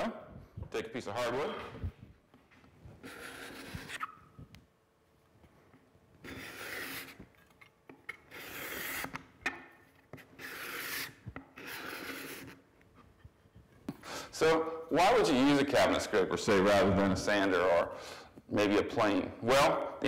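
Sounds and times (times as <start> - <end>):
cabinet scraper scraping wood: 3.0 - 4.1, 6.2 - 7.2, 8.1 - 9.2, 10.2 - 12.6.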